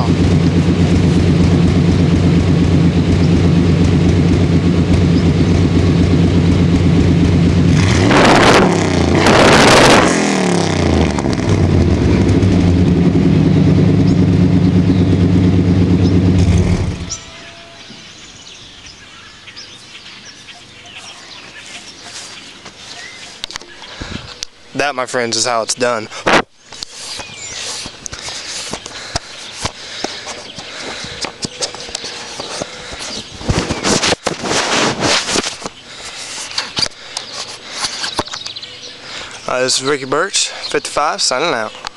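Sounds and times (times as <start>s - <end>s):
pickup engine idling and revving: 0.0s - 17.2s.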